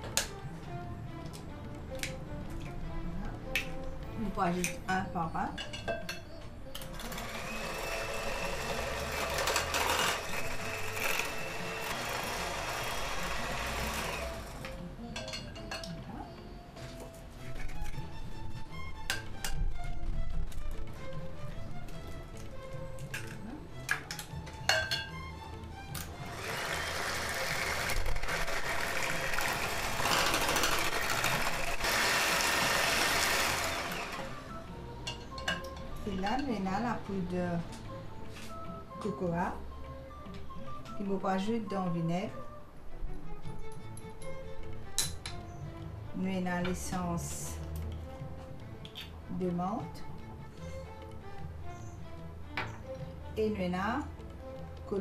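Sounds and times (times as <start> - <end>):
electric hand mixer whirring: 6.9 - 14.8, 26.1 - 34.7.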